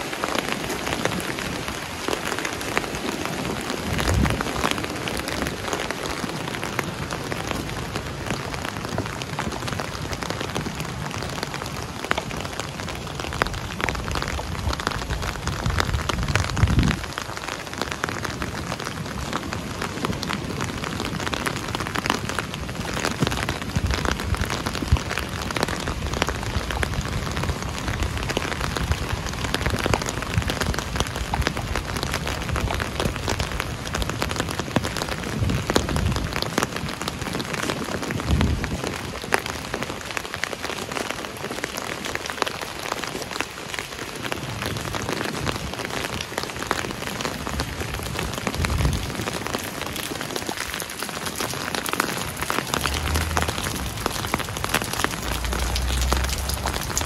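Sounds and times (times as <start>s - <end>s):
steady rain on a surface: 0.0s - 57.0s
low rumbling: 52.2s - 57.0s.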